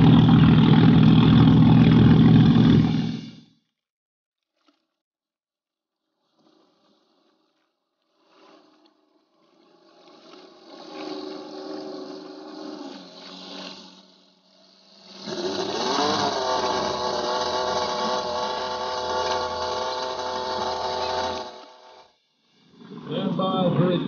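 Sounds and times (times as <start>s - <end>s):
loud engine revving: 0.0s - 3.4s, 10.4s - 22.1s
motorboat engine running: 0.0s - 3.5s, 8.1s - 24.0s.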